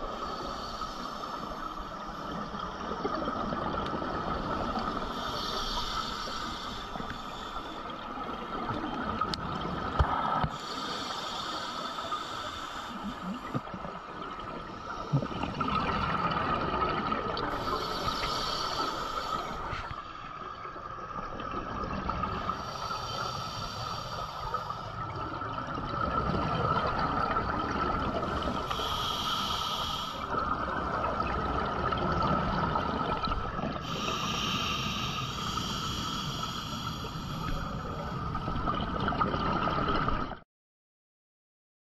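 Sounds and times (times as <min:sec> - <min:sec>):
regulator hiss: 0:04.7 - 0:07.9, 0:17.6 - 0:19.7, 0:28.4 - 0:30.3, 0:33.8 - 0:38.1
exhaled bubbles rushing: 0:14.8 - 0:17.7, 0:25.2 - 0:28.7, 0:30.4 - 0:33.9.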